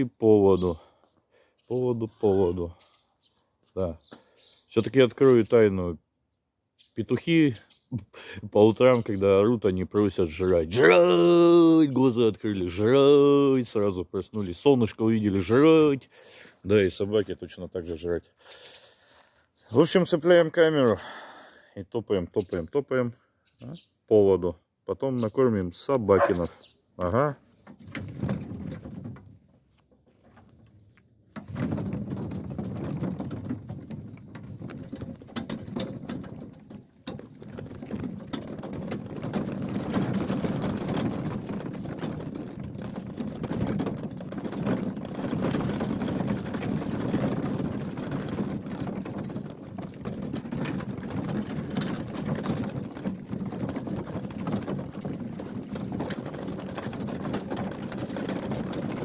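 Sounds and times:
gear rattling and clattering: 26.2s - 59.0s.

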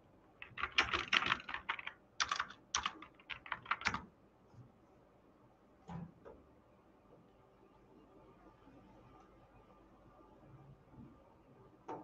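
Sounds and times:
typing on computer keyboard: 0.4s - 4.1s.

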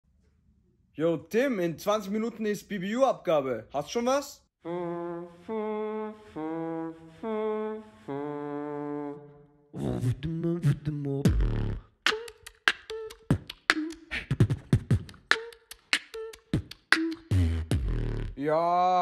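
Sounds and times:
man beatboxing: 9.8s - 19.0s.

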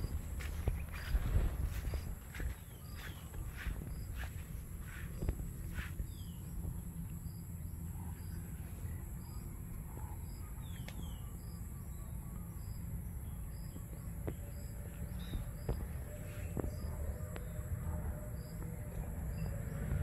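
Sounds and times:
low rumble: 0.0s - 10.4s.

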